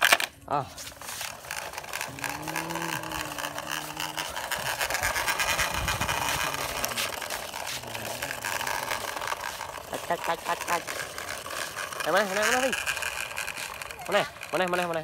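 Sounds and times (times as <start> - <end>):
toy truck rolling on gritty dirt: 0.0 - 15.0
lower hum sinking in pitch: 2.0 - 9.0.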